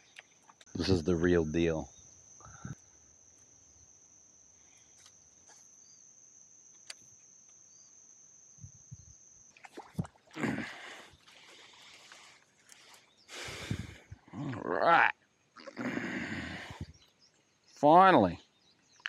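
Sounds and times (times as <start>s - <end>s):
high-pitched insect trill: 0.0s - 19.0s.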